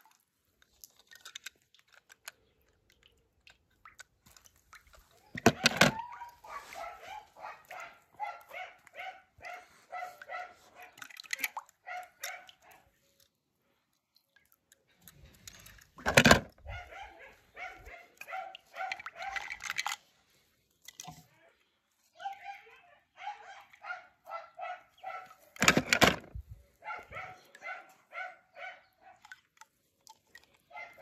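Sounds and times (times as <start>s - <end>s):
dog barking: 5.6s - 11.0s, 11.8s - 12.9s, 16.6s - 19.5s, 22.2s - 25.6s, 26.8s - 29.3s, 30.7s - 31.0s.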